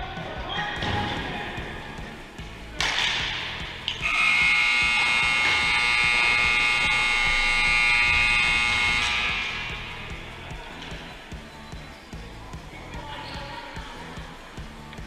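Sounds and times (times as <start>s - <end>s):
scoreboard buzzer: 4.0s - 10.1s.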